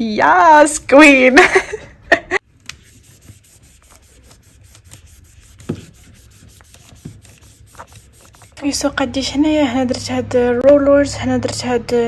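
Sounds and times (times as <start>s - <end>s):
cotton pad rubbing on palette lid: 2.8s - 8.9s.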